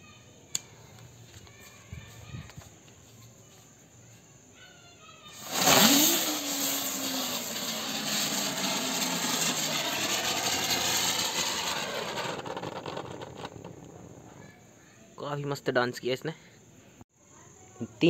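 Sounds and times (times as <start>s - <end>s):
firecracker whooshing and hissing: 5.3s - 14.6s
burning fuse fizzing: 5.4s - 14.4s.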